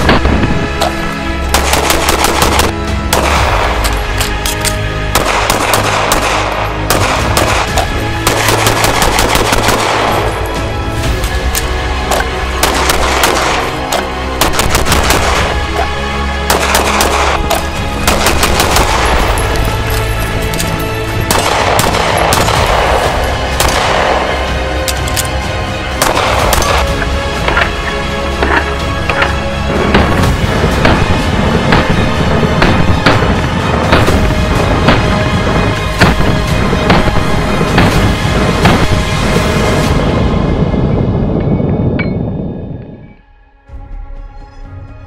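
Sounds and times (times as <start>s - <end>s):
background music: 0.0s - 45.0s
rapid pistol shots: 1.5s - 3.7s, 5.1s - 10.3s, 12.6s - 15.5s, 16.5s - 19.2s.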